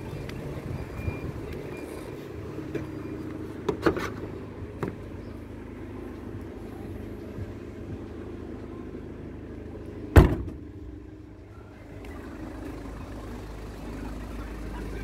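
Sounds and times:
steady low hum: 0.0s - 15.0s
car tailgate thump: 10.1s - 10.7s.

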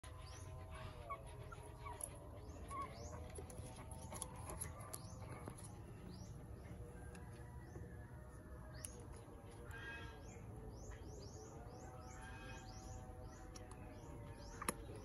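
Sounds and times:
puppies squeaking and whimpering: 0.0s - 6.4s, 9.3s - 10.5s, 11.7s - 15.0s.

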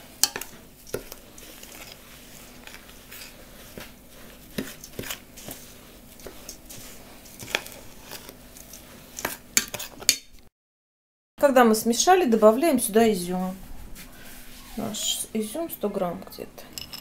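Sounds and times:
spoon scraping dough: 0.0s - 10.2s.

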